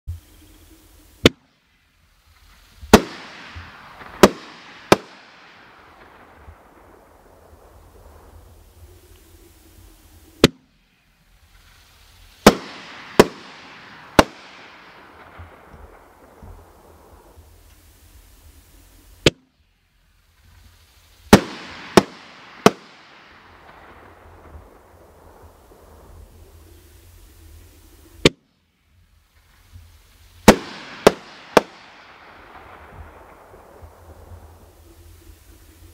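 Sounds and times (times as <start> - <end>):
firework hiss: 0.1 - 35.9
mortar launch report: 0.9 - 28.5, 29.2 - 35.9
firework bangs: 2.3 - 8.8, 11.4 - 18.6, 20.8 - 26.4, 29.4 - 34.9
firework shell bangs: 2.9 - 5.3.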